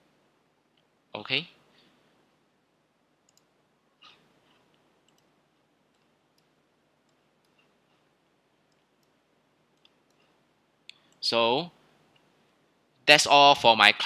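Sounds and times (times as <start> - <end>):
faint computer clicks: 3.3 - 8.1, 8.7 - 11.2.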